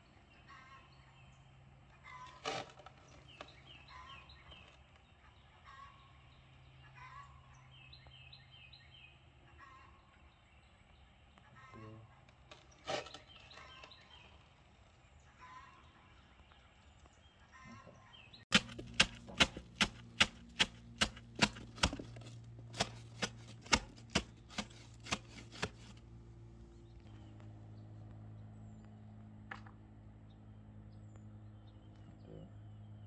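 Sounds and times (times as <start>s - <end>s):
hammer strikes: 18.5s - 25.9s.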